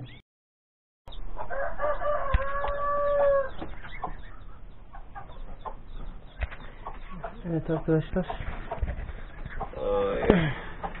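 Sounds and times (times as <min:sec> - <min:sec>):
poultry clucking: 0:01.1 - 0:11.0
rooster crowing: 0:01.5 - 0:03.6.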